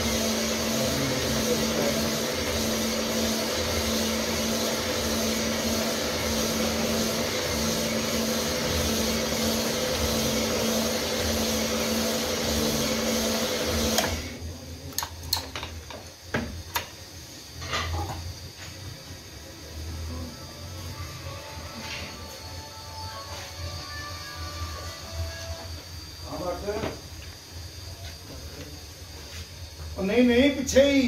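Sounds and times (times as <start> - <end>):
honing machine humming: 20.0 - 25.8.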